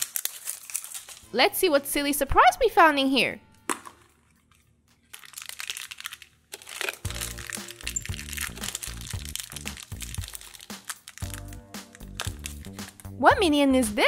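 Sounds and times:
plastic wrapper crinkling: 0:00.0 - 0:01.4, 0:04.0 - 0:13.2
upbeat background music: 0:07.0 - 0:14.0.

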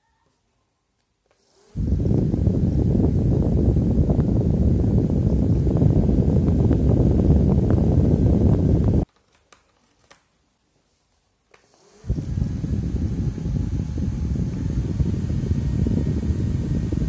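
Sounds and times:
desk fan air rushing: 0:01.4 - 0:09.1, 0:11.7 - 0:17.0.

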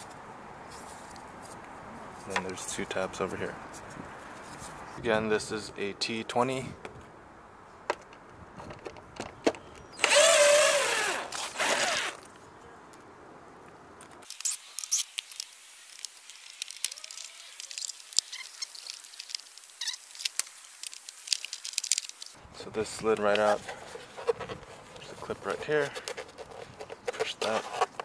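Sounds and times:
rustling: 0:00.0 - 0:05.0, 0:13.7 - 0:28.0
cordless driver whining: 0:10.0 - 0:12.2.

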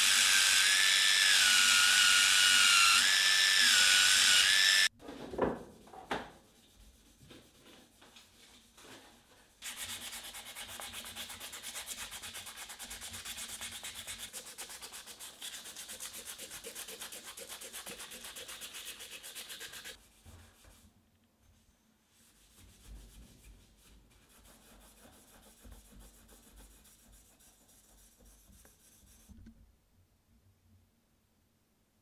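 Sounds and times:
hand sanding metal: 0:09.6 - 0:20.0, 0:22.3 - 0:29.3.

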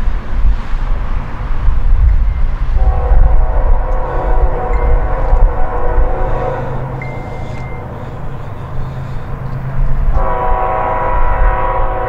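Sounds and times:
low rumble: 0:00.0 - 0:12.0
locomotive air horn blasts: 0:02.6 - 0:12.0.

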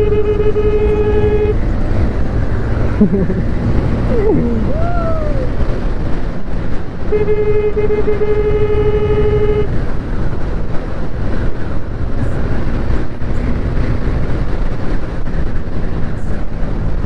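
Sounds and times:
vehicle horn: 0:00.0 - 0:01.6, 0:07.1 - 0:09.8
wind and road rumble: 0:00.0 - 0:17.0.

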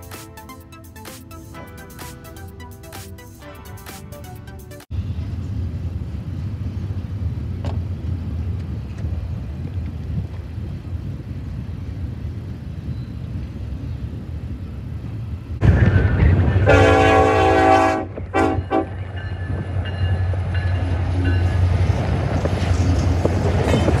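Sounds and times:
freight train rumbling: 0:00.0 - 0:24.0
locomotive air horn: 0:16.6 - 0:19.0.

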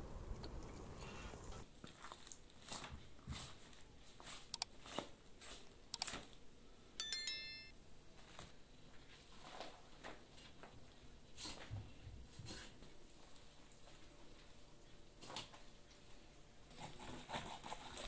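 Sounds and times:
bell-like chime: 0:07.0 - 0:07.8, 0:16.7 - 0:18.0.

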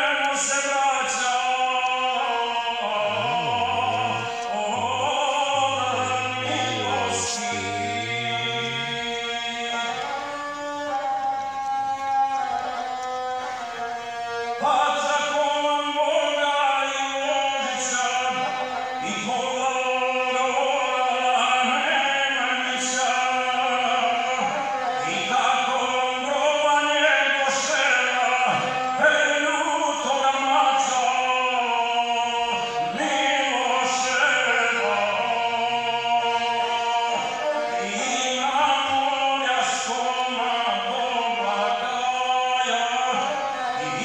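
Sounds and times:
bowed single-string fiddle: 0:00.1 - 0:44.0
man singing epic verse: 0:00.3 - 0:10.2.

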